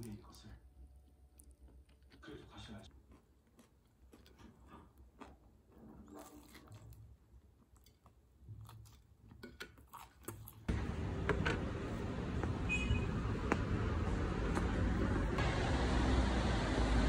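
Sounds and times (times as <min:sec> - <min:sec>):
person chewing food: 0:01.2 - 0:02.3, 0:02.9 - 0:10.7
street traffic noise: 0:10.7 - 0:17.0.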